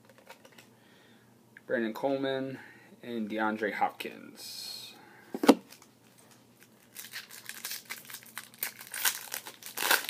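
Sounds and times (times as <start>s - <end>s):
wrapper crinkling and tearing: 6.6s - 10.0s.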